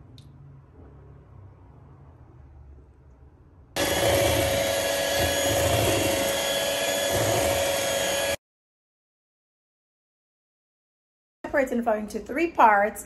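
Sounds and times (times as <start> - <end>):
stand mixer running: 3.8 - 8.4.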